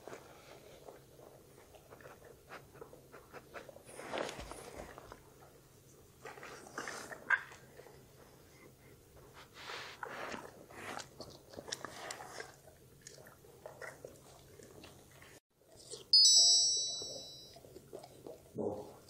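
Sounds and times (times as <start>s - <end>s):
dog crunching food: 10.4s - 16.0s
high bright chime: 16.2s - 17.6s.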